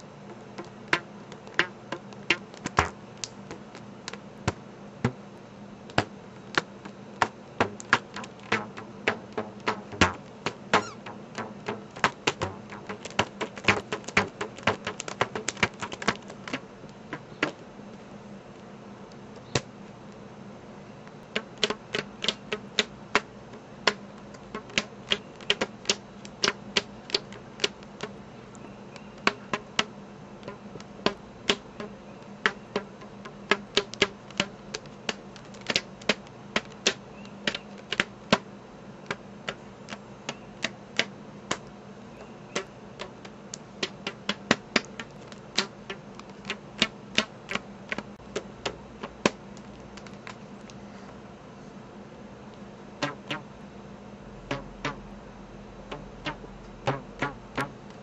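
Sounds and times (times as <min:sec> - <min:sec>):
rubber bands plucked and snapped: 0:00.3 - 0:05.2, 0:05.9 - 0:17.6, 0:21.1 - 0:28.6, 0:29.2 - 0:38.4, 0:42.6 - 0:50.4, 0:53.0 - 0:53.4, 0:54.5 - 0:55.0, 0:55.9 - 0:58.0.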